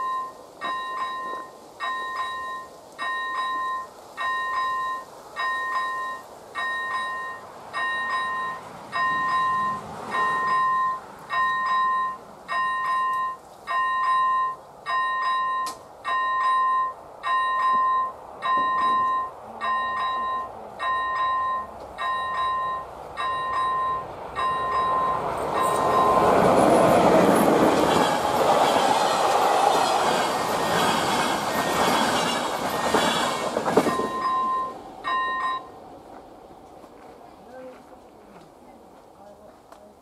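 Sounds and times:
level crossing bell ringing: 0.0 - 26.4, 33.9 - 35.8.

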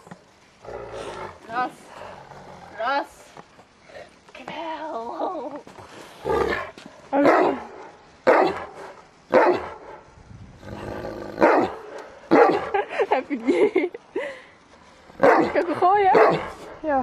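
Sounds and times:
large dog barking: 7.2 - 10.1, 11.4 - 12.8, 15.2 - 16.7.

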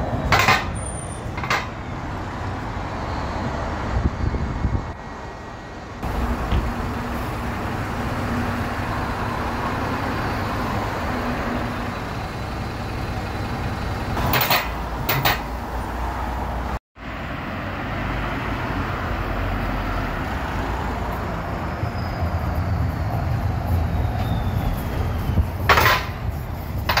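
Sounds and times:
bus engine hum: 0.0 - 27.0.

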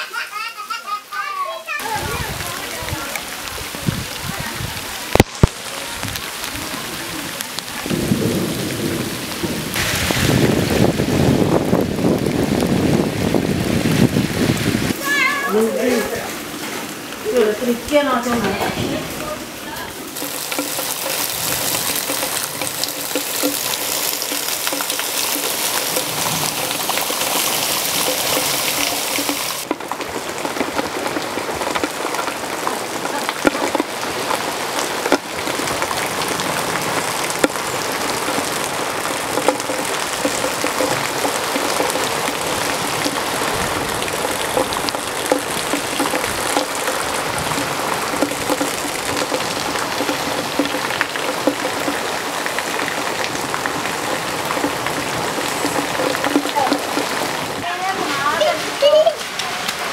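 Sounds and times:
steady rain falling: 0.0 - 59.9
sharp drips and knocks: 1.8 - 59.9.

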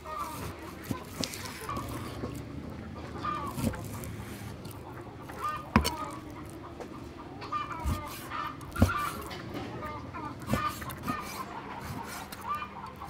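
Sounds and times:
domestic fowl calling: 3.0 - 13.0
cleaver chopping meat on wooden block: 5.6 - 6.2, 7.8 - 9.3.

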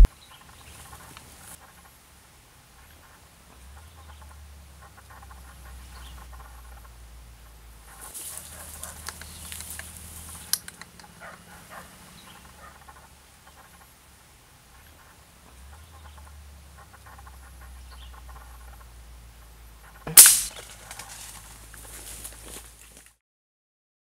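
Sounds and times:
leaves and brush rustling: 0.0 - 3.5, 7.8 - 15.7, 20.1 - 23.2
sharp click: 20.1 - 20.6.

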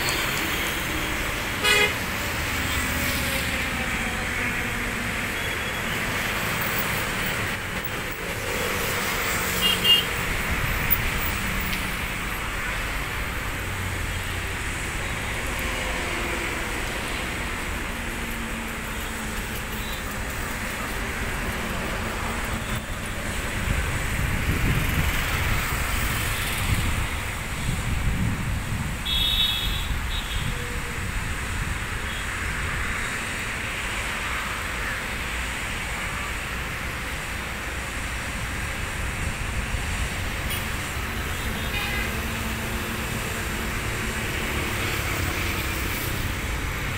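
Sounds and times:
distant road traffic hum: 0.0 - 46.9
wind rumble on microphone: 23.5 - 29.1.

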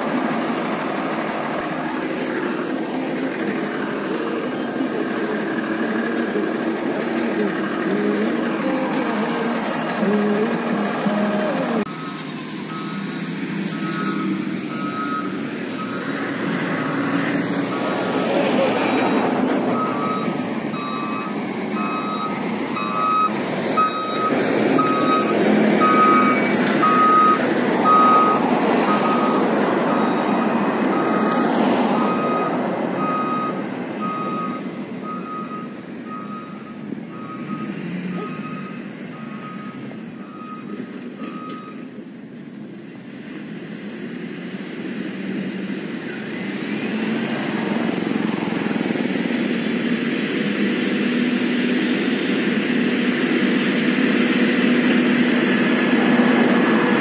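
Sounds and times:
diesel engine running: 0.0 - 57.0
back-up alarm beeping: 11.8 - 16.2, 19.8 - 41.8.

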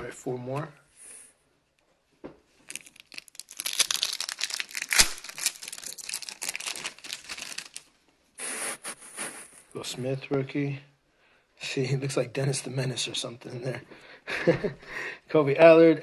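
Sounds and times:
wrapper crinkling: 2.6 - 7.9
wrapper ripping: 2.6 - 7.9.

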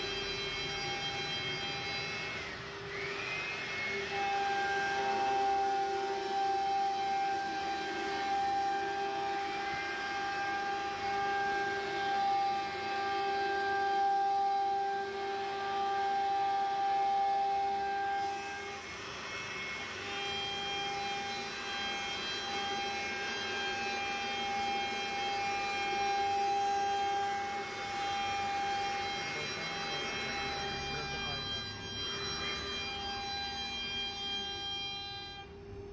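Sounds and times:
router spindle whining: 0.0 - 35.9.

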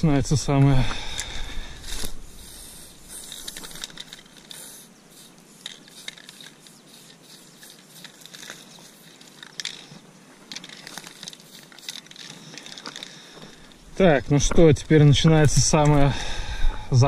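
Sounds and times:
spray paint can hissing: 1.8 - 9.9, 10.6 - 12.8.

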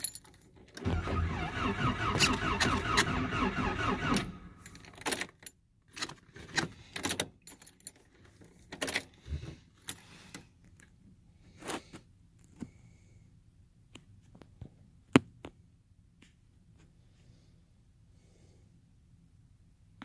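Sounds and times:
keys jingling: 0.0 - 0.7.

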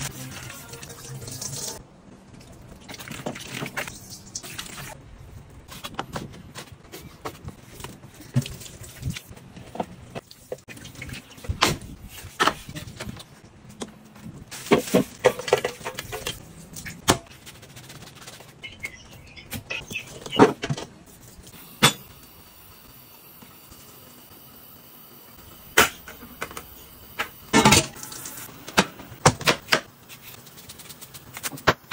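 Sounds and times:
running tap water splashing: 0.0 - 1.8, 27.8 - 28.5.

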